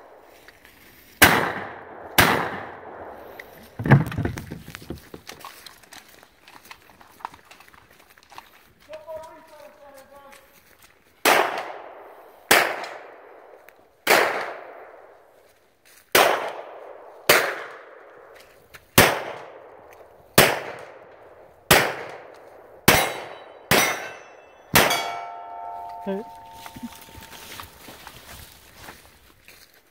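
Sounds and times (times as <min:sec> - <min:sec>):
handgun shots echoing: 0:01.2 - 0:03.1, 0:11.2 - 0:15.0, 0:16.2 - 0:18.3, 0:19.0 - 0:26.9.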